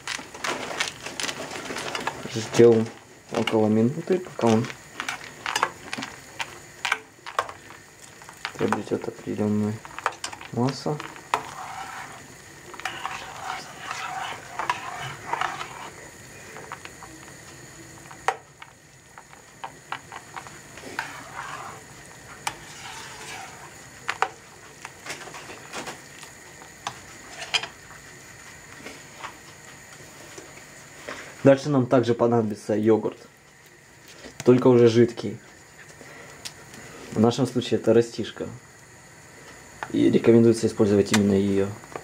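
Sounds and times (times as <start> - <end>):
spoon swishing through liquid: 11.3 - 16.0, 20.8 - 21.8, 22.5 - 23.8.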